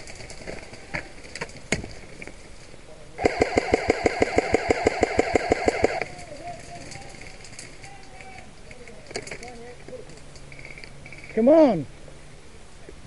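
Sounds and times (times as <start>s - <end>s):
airsoft gun full-auto burst: 3.2s - 6.1s.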